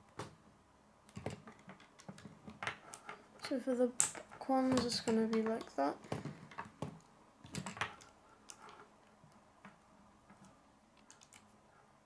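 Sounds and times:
plastic pieces clicking: 1.1 - 8.8.

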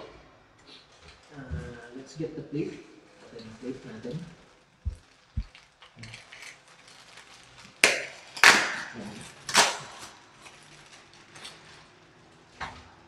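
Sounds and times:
sharp plastic crackles: 4.4 - 12.6
plastic packaging crinkling: 4.8 - 12.5.

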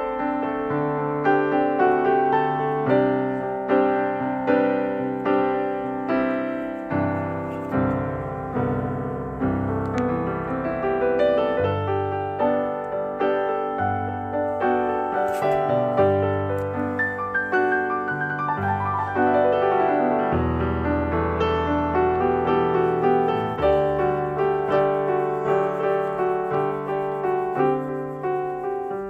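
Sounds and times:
gentle piano melody: 0.0 - 29.0.

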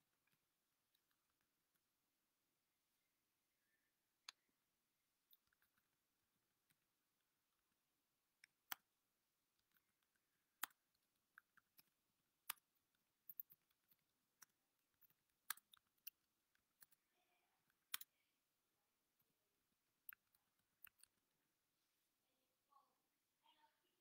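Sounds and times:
sharp clicks and taps: 9.6 - 17.0.

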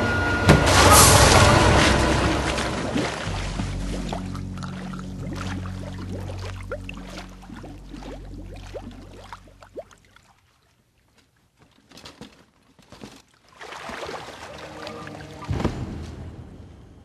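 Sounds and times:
low droning film score: 0.0 - 9.8, 14.4 - 17.0
bathwater bubbling and gurgling: 0.7 - 10.6, 13.5 - 15.6.

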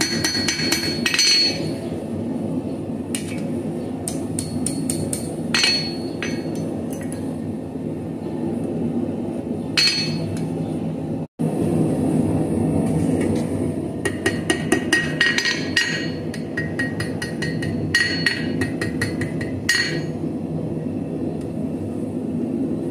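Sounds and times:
hammer ringing on anvil: 0.0 - 1.8, 4.1 - 6.6, 9.8 - 10.4, 14.1 - 20.1.

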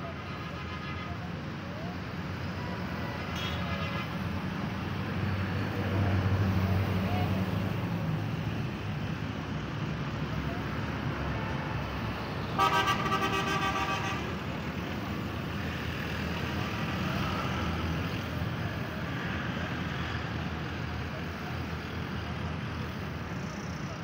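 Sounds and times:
vehicle horn: 3.3 - 4.1, 12.6 - 14.4.

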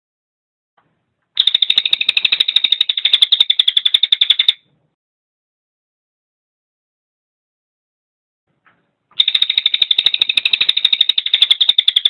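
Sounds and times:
jay rattling call: 1.4 - 4.6, 9.2 - 12.0.

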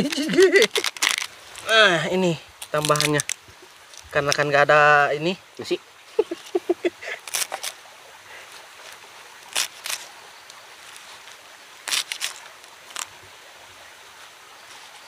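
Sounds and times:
knife snapping crisp stems: 7.2 - 7.8, 9.5 - 10.0.

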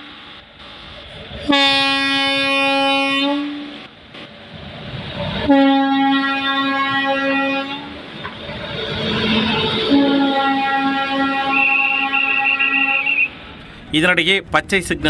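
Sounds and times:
low rumble of passing train: 0.0 - 15.0
locomotive horn blasts: 1.4 - 3.9, 5.4 - 8.0, 9.2 - 13.5.

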